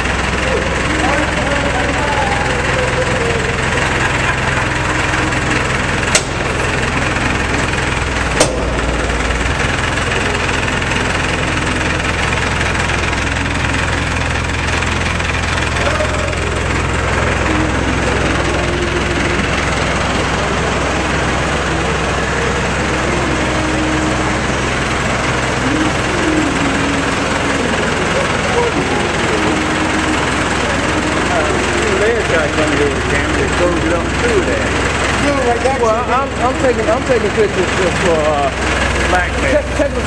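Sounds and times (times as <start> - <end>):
forklift engine running: 0.0 - 40.0
sharp knocks: 6.1 - 6.5, 8.3 - 9.4.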